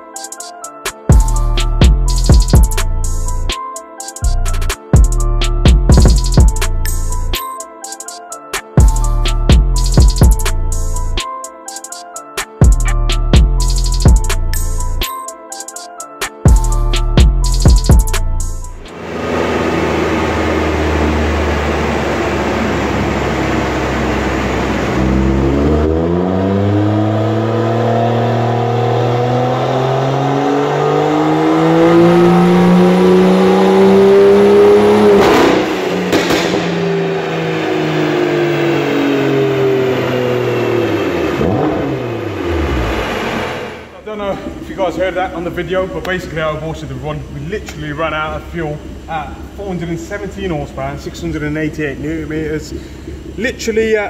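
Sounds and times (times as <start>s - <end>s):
dyno rollers winding down: 18.9s - 27.4s
car engine revving on dyno: 18.9s - 43.9s.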